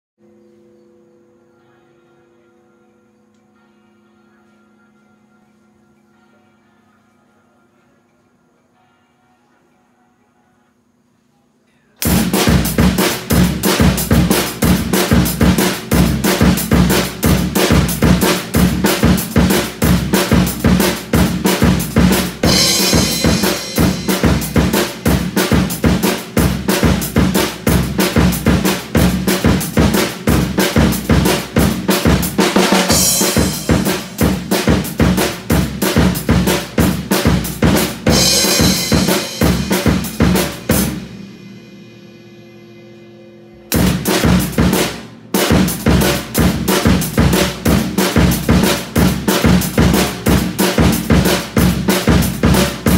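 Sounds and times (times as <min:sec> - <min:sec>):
drum kit groove: 0:12.0 - 0:42.6, 0:43.6 - 0:52.9
cymbals washing: 0:12.0 - 0:52.9.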